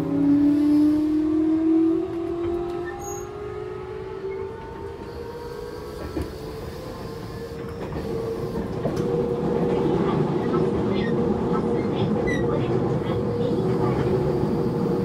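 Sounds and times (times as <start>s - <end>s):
traction motor whine: 2.0s - 9.2s
train running noise: 4.0s - 15.0s.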